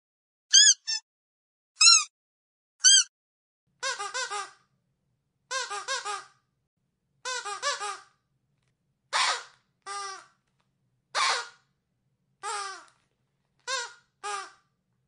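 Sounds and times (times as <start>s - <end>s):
squeaky dog toy squeaking: 0.5s - 1.0s, 1.8s - 2.1s, 2.8s - 3.1s, 3.8s - 4.6s, 5.5s - 6.4s, 7.2s - 8.1s, 9.1s - 10.3s, 11.2s - 11.6s, 12.4s - 12.9s, 13.6s - 14.6s.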